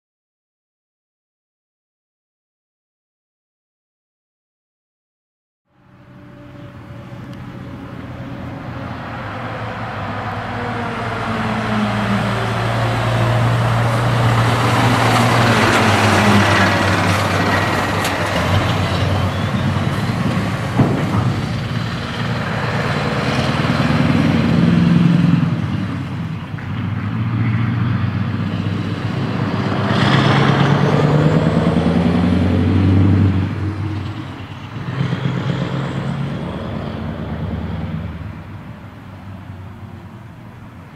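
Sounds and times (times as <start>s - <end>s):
truck engine revving: 5.9s - 40.0s.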